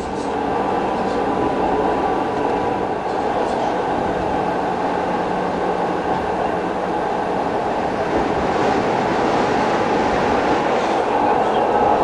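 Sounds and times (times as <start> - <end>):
tram wheels rumbling on track: 0.0 - 12.0.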